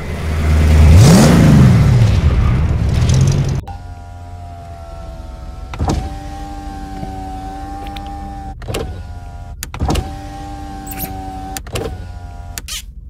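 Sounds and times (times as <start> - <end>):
low steady rumble: 0.0 - 13.0
power window motor whining: 3.6 - 13.0
window clunk: 5.6 - 12.7.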